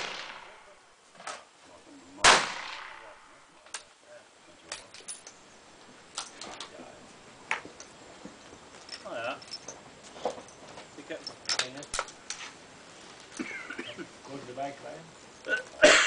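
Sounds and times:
rifle shot with echo: 0:00.0 - 0:00.8, 0:02.2 - 0:03.5.

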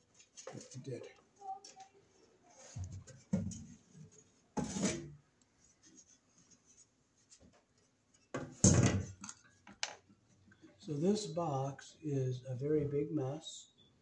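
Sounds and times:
panel cover scraping: 0:04.6 - 0:05.1.

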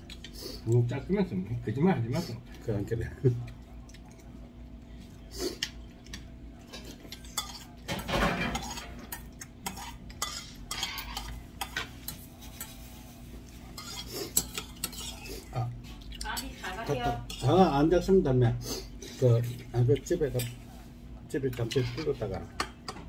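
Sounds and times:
faint steady hum: 0:00.0 - 0:23.0
metal spoon scraping in a bowl: 0:07.2 - 0:13.0, 0:13.7 - 0:15.4, 0:21.5 - 0:22.4.

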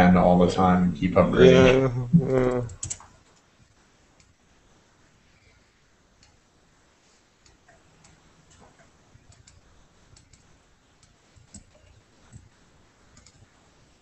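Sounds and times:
computer mouse clicks: 0:02.5 - 0:03.5, 0:06.2 - 0:06.4, 0:07.4 - 0:13.6.

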